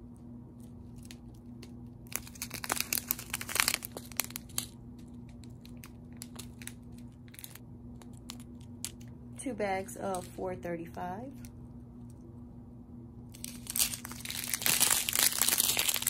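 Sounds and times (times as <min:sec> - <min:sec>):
plastic bags crinkling: 0:00.6 - 0:09.1, 0:13.3 - 0:16.0.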